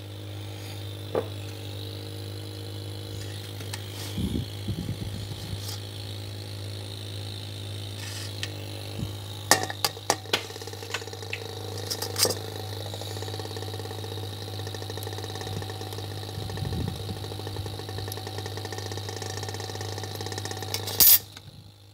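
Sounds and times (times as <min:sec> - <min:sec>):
engraver buzzing: 0:00.0 - 0:21.9.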